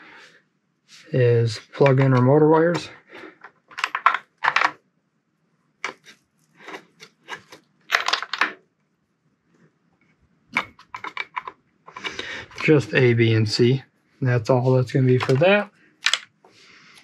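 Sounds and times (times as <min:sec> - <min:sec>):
connectors clicking and rattling: 0:01.8 - 0:04.8, 0:05.8 - 0:08.6, 0:10.5 - 0:13.0, 0:15.1 - 0:17.0.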